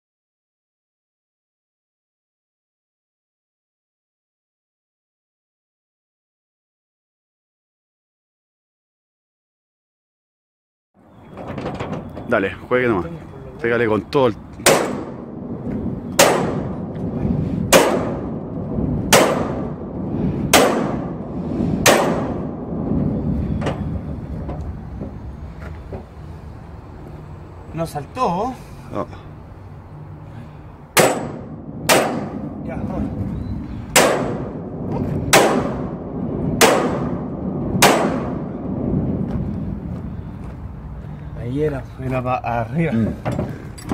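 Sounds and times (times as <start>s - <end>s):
hammer striking metal: 31.0s - 32.5s.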